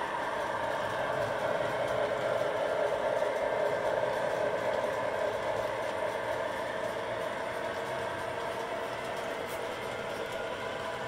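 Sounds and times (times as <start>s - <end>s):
model train wheels clattering: 0.0s - 11.0s.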